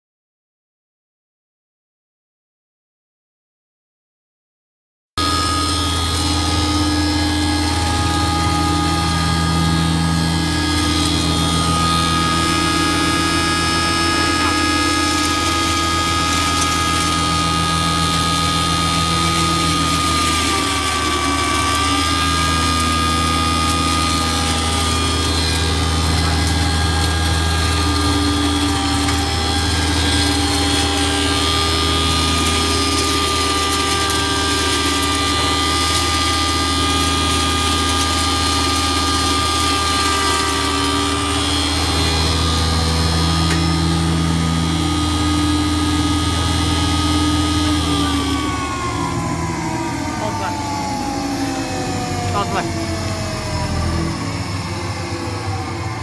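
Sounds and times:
grain mill motor hum: 0:05.2 - 0:56.0
high whine: 0:05.2 - 0:56.0.

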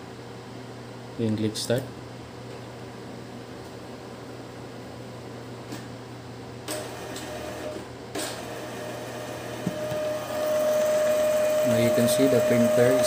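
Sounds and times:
printer motor whining: 0:06.7 - 0:13.0.

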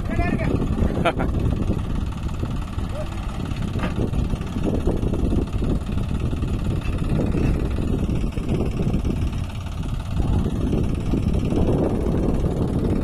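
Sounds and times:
tractor diesel engine idling: 0:00.0 - 0:13.0.

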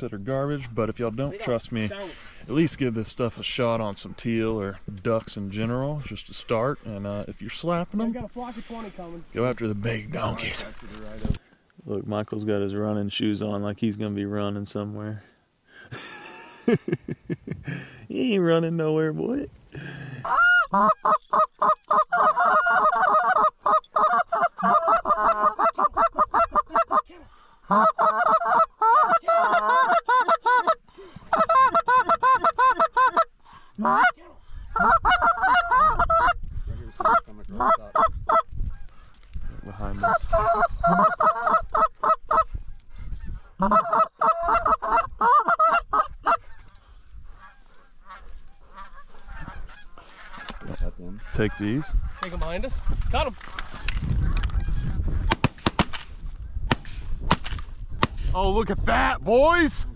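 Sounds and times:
goose calls honking and clucking: 0:20.2 - 0:39.0, 0:39.6 - 0:52.6, 0:53.6 - 0:55.2.

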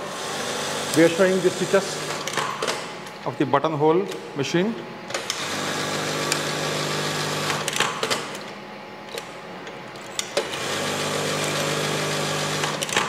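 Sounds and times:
sewing machine humming: 0:00.0 - 0:02.9, 0:05.1 - 0:08.5, 0:10.4 - 0:13.0
sewing machine mechanism clacks: 0:12.5 - 0:13.0.

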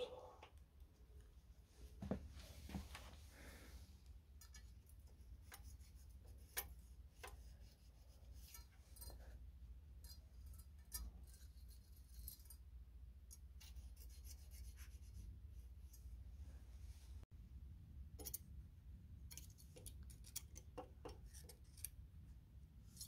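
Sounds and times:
low steady hum: 0:00.0 - 0:23.0
metal blade clicks and scrapes: 0:10.0 - 0:12.6.

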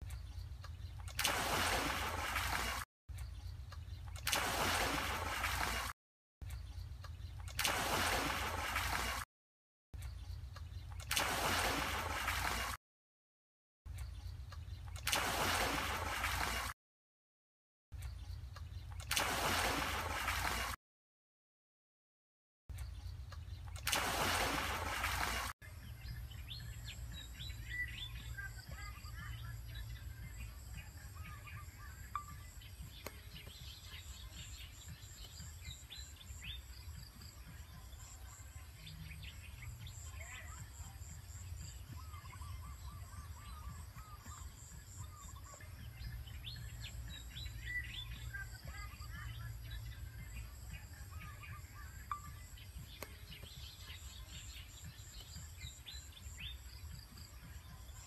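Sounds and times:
small birds chirping: 0:00.0 - 0:09.1, 0:10.0 - 0:12.6, 0:13.9 - 0:16.6, 0:18.0 - 0:20.2, 0:22.7 - 0:58.0
water splashing into muddy water: 0:00.8 - 0:02.9, 0:04.0 - 0:06.0, 0:07.3 - 0:09.3, 0:10.8 - 0:12.8, 0:14.8 - 0:16.8, 0:18.9 - 0:20.8, 0:23.6 - 0:25.6.

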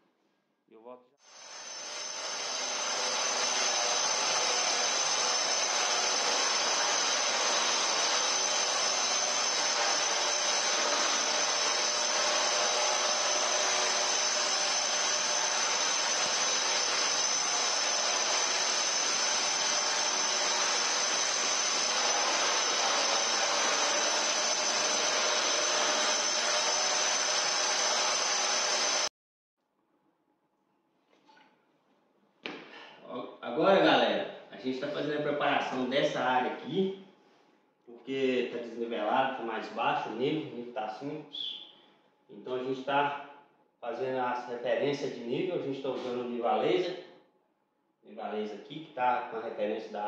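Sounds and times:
angle grinder grinding concrete: 0:01.3 - 0:29.1.

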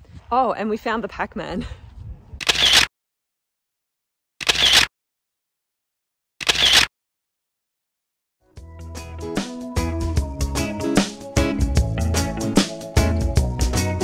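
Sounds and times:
music: 0:08.4 - 0:14.0.

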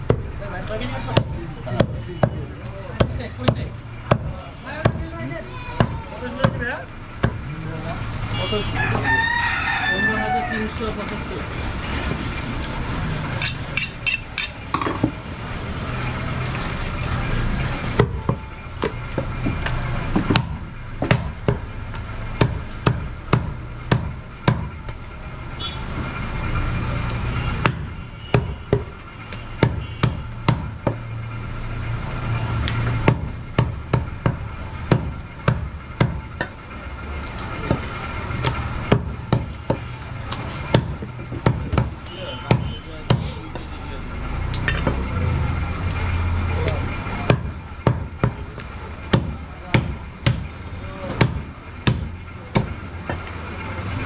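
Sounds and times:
cleaver chopping on wooden block: 0:22.4 - 0:24.7, 0:27.6 - 0:28.9, 0:37.7 - 0:43.4, 0:47.3 - 0:48.4, 0:49.1 - 0:50.5.

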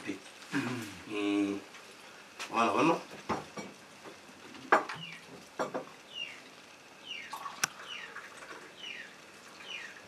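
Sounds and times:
small bird chirping: 0:04.9 - 0:05.4, 0:06.0 - 0:10.0
flask and cups knocking: 0:05.6 - 0:05.9.

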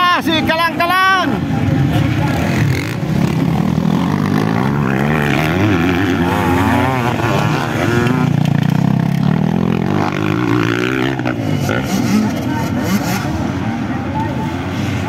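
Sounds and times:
dirt bike engines revving: 0:00.0 - 0:15.0.

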